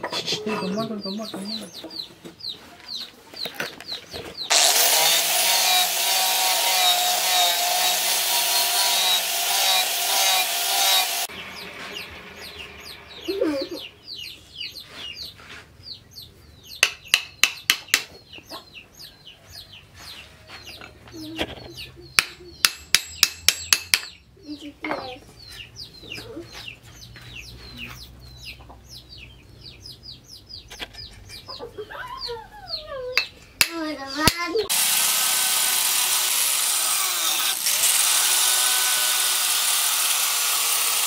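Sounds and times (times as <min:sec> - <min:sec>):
chickens clucking: 0:00.0 - 0:04.5, 0:17.8 - 0:22.7, 0:24.6 - 0:33.4
angle grinder sanding wood: 0:04.5 - 0:13.8, 0:34.7 - 0:41.0
hammer strikes on axe head: 0:16.8 - 0:18.1, 0:22.2 - 0:24.2.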